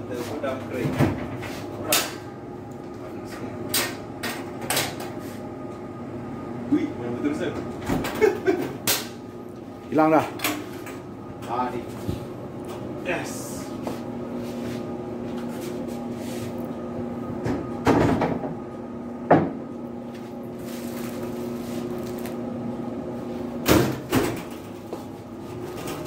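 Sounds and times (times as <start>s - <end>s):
steady hum: 0.0s - 26.0s.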